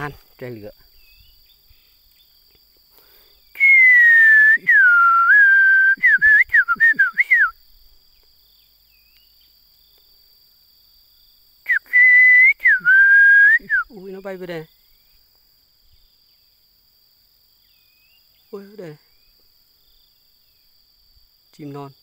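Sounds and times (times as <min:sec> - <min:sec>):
distant birdsong: 0:00.0 - 0:03.8, 0:07.5 - 0:11.9, 0:13.9 - 0:21.8
person whistling bird-like: 0:03.5 - 0:07.6, 0:11.7 - 0:14.0.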